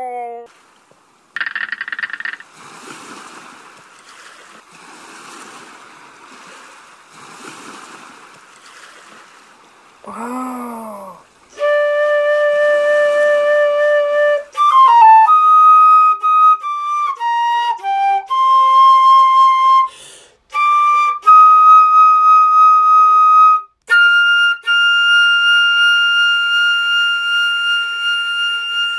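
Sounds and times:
solo flute melody: 0:11.5 - 0:28.9
flute player breaths: 0:19.9 - 0:20.4.

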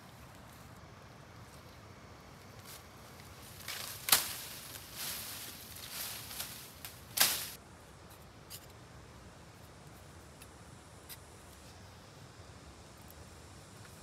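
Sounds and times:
leaves rustling underfoot: 0:00.0 - 0:12.2
sharp twig snaps: 0:03.6 - 0:07.6.

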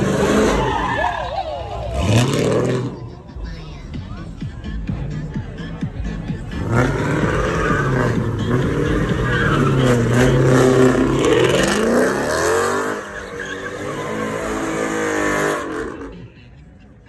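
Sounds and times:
tires spinning on pavement: 0:00.0 - 0:03.3, 0:06.4 - 0:16.5
car engine revving hard: 0:01.9 - 0:03.0, 0:06.5 - 0:16.2.

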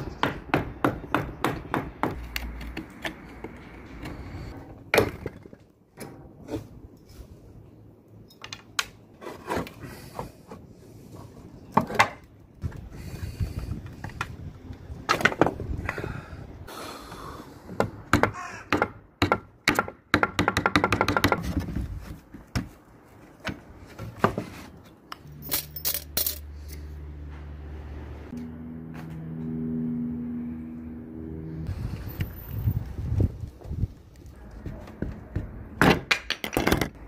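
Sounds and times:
metallic clinks and rattles: 0:25.2 - 0:26.8.

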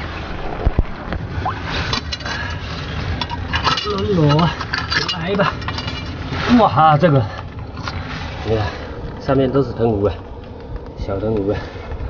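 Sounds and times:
metal rod scraping against rocks: 0:01.7 - 0:08.2.

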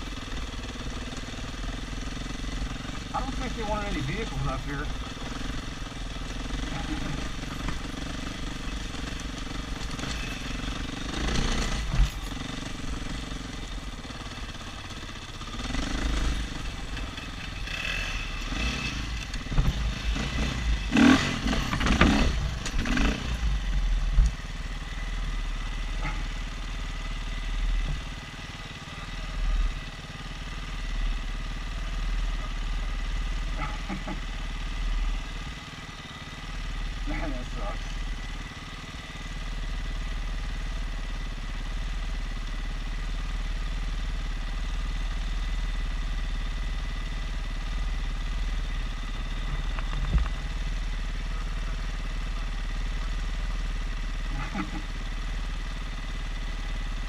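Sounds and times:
dirt bike engine revving: 0:00.0 - 0:24.2, 0:48.8 - 0:57.0
engine clatter: 0:00.0 - 0:57.0
motorcycle ahead: 0:00.0 - 0:57.0.

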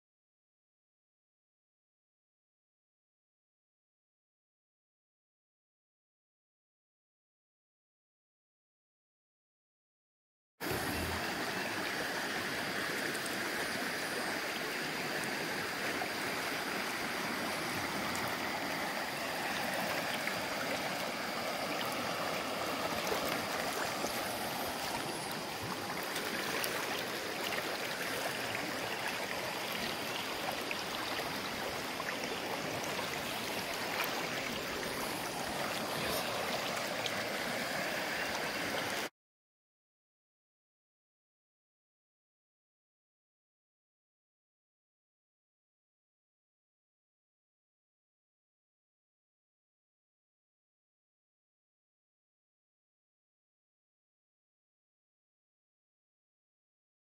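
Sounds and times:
river flowing over gravel: 0:10.6 - 0:39.1.

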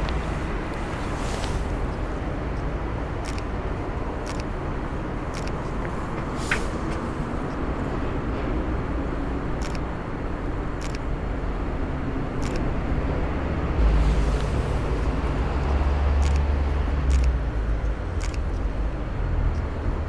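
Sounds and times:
heavy low rumble: 0:00.0 - 0:20.0
hum of passing vehicles: 0:00.0 - 0:20.0
light ticks: 0:01.4 - 0:03.5, 0:17.1 - 0:18.7.

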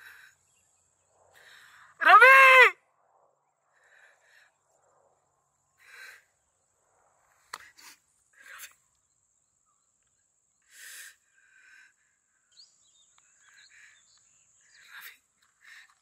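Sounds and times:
faint bird chirps: 0:00.0 - 0:01.9, 0:07.3 - 0:16.0.

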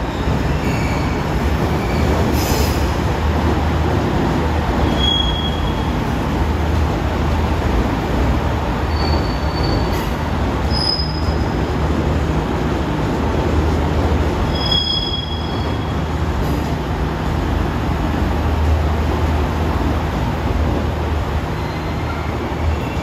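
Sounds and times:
wheels rumbling on rail: 0:00.0 - 0:23.0
high-pitched wheel squeals: 0:04.8 - 0:05.9, 0:08.9 - 0:10.1, 0:10.7 - 0:11.6, 0:14.5 - 0:16.0.

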